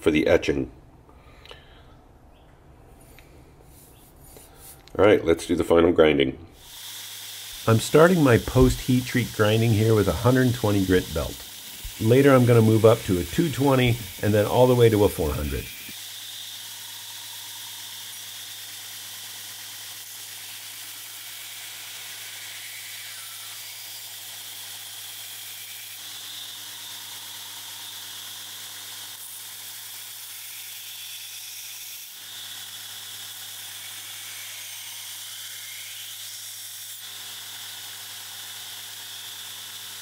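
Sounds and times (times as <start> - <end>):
abrasive grinding hiss: 6.6 - 16.0
belt grinder motor hum: 6.6 - 30.3, 32.1 - 40.0.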